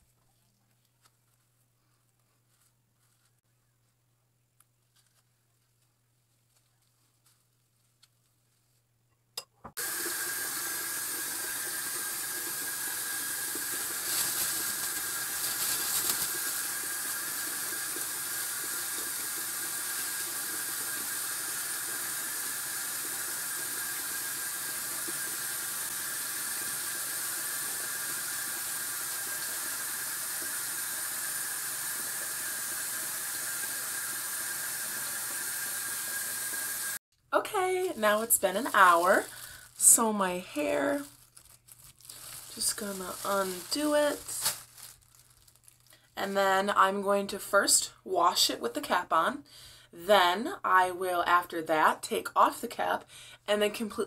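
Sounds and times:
rushing hiss of running water: 0:09.8 - 0:37.0.

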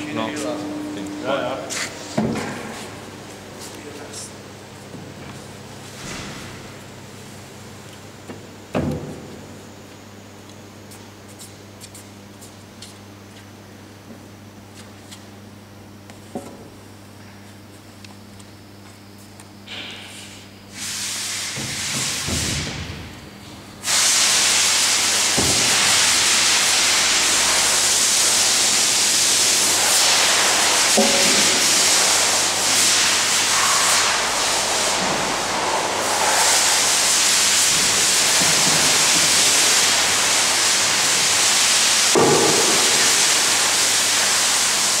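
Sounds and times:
loud steady hiss: 0:19.7 - 0:23.1, 0:23.8 - 0:45.0.

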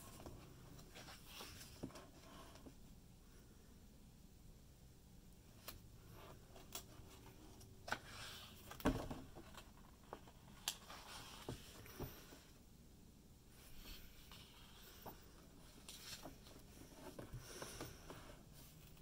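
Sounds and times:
page rustling: 0:13.8 - 0:17.8.

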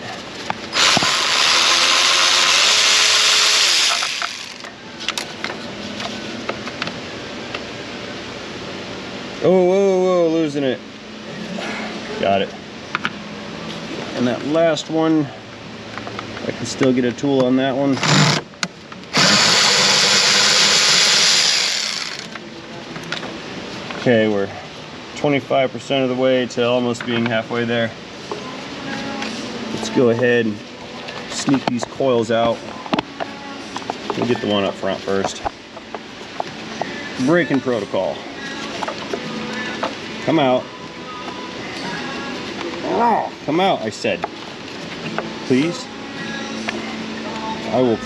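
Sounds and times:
power ratchet spinning: 0:00.7 - 0:04.7, 0:17.9 - 0:18.4, 0:19.1 - 0:22.4.

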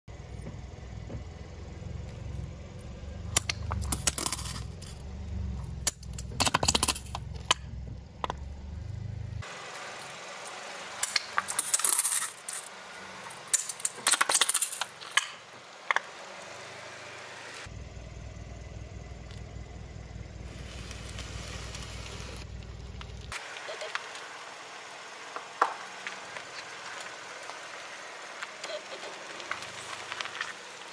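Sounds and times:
low steady rumble: 0:00.1 - 0:09.5, 0:15.6 - 0:23.4
plastic tubes cracking and popping: 0:05.8 - 0:07.6, 0:13.3 - 0:16.1.

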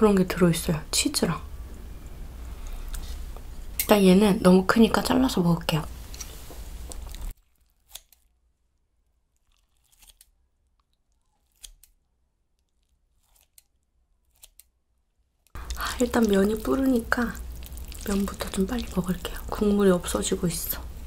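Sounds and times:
scissors snipping: 0:07.8 - 0:08.2, 0:09.8 - 0:10.3, 0:11.3 - 0:12.0, 0:13.2 - 0:13.7, 0:14.3 - 0:14.7.

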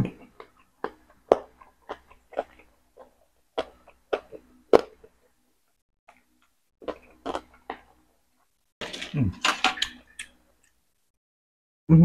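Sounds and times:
person chewing chicken: 0:00.1 - 0:05.4, 0:06.1 - 0:08.5.

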